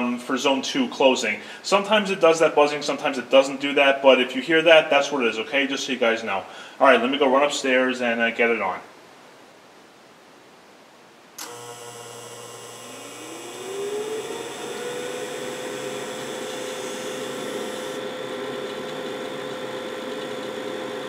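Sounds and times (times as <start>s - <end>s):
inducer motor whine: 11.4s - 21.0s
low buzz: 11.4s - 21.0s.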